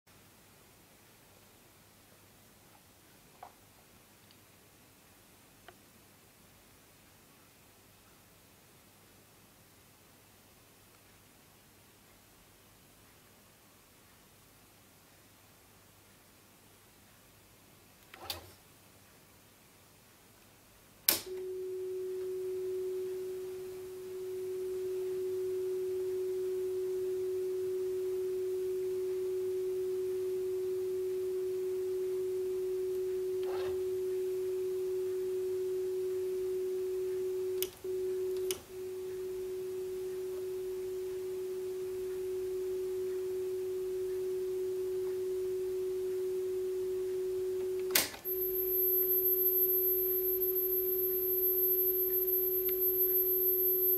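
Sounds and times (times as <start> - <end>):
clicks: 21.1 - 21.5, 36.1 - 53.9
steady calibration tone: 21.3 - 53.9
very high tone: 21.3 - 53.9.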